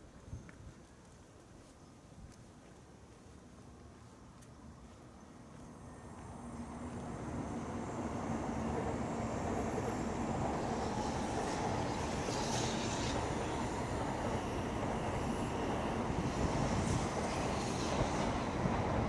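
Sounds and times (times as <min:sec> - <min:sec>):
train rumbling on elevated track: 0:05.0 - 0:19.0.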